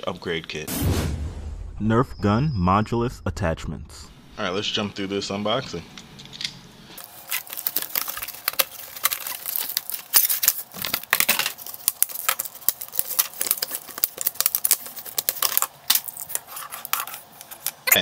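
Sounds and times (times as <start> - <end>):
plastic packaging clicks and clacks: 7.0 - 18.0.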